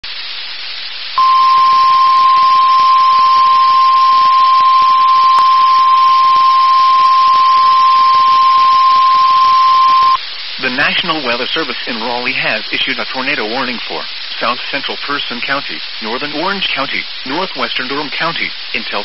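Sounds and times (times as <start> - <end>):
radio hiss: 0.8 - 19.0
steady alarm tone: 1.2 - 10.2.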